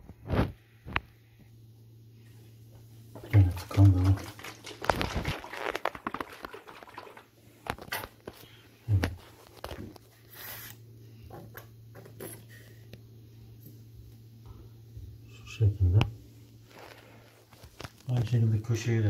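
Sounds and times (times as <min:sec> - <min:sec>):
plastic bottle clicking and rustling: 0:04.6 - 0:07.0.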